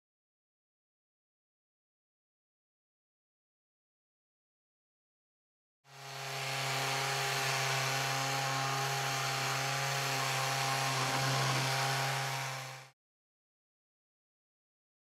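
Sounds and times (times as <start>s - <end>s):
electric sander buzzing: 5.9s - 13.0s.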